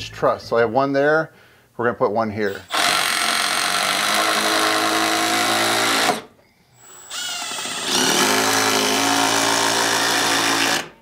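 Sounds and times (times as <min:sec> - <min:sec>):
impact driver driving screws: 0:02.6 - 0:10.9.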